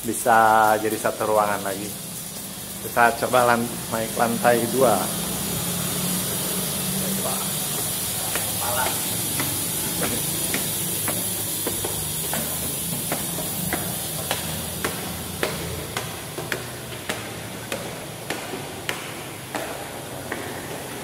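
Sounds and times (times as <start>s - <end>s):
steady hiss: 0.0s - 21.0s
footsteps on hard stairs: 7.6s - 21.0s.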